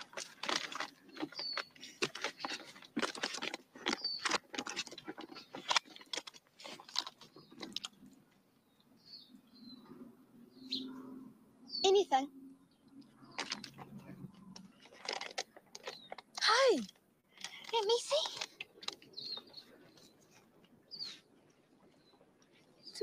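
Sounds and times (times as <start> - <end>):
bird chirps: 1.0 - 2.8, 3.9 - 4.4, 8.6 - 14.8, 18.1 - 21.3.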